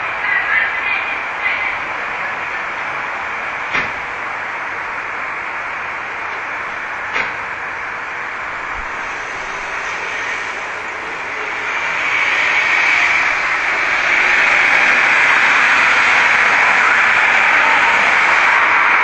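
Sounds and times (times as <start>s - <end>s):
road traffic noise: 0.0s - 19.0s.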